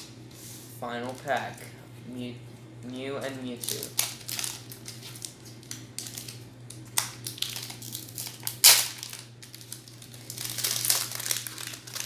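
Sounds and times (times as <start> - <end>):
foil wrapper crinkling: 3.5 - 12.0.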